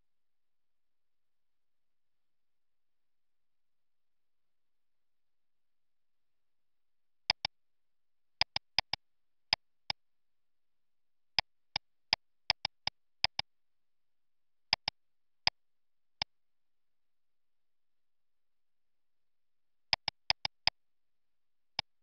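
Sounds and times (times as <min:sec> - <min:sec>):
computer mouse clicks: 0:07.3 - 0:07.5, 0:08.4 - 0:09.0, 0:12.5 - 0:13.4, 0:14.7 - 0:14.9, 0:19.9 - 0:20.7.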